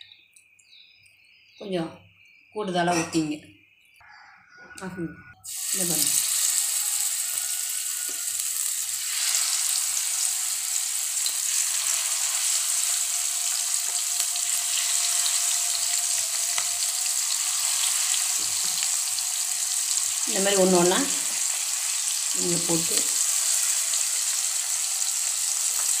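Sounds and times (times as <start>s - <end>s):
fish sizzling in oil: 5.4s - 26.0s.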